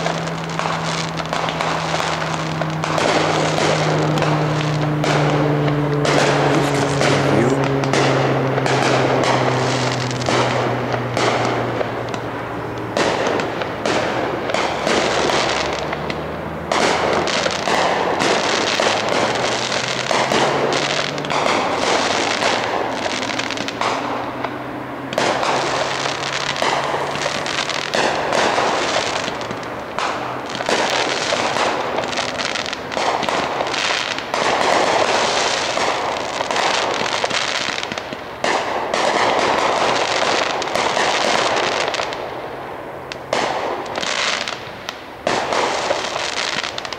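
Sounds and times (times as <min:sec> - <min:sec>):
fireworks bangs and crackling: 0:00.0 - 0:46.9.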